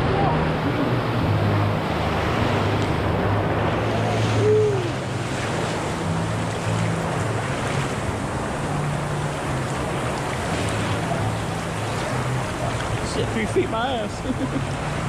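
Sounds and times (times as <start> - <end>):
low hum: 0.0 - 15.0
rushing river water: 0.0 - 15.0.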